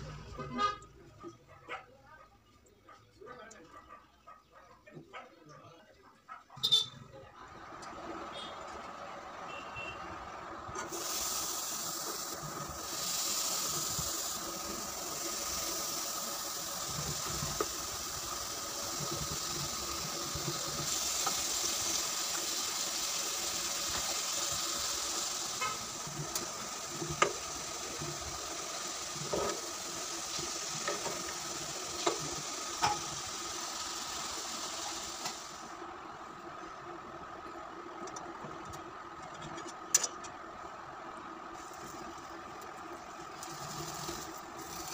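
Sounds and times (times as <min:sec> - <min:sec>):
meat sizzling in a frying pan: 0:10.9 - 0:35.7, 0:43.3 - 0:44.9.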